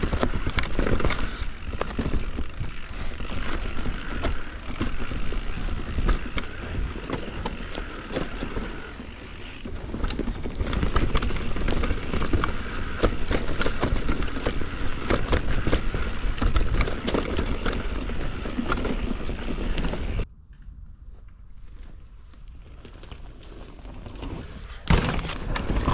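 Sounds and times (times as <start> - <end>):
bike chain and frame clattering: 0.0 - 20.2
bike tyres rumbling on dirt: 0.0 - 20.2, 21.2 - 25.9.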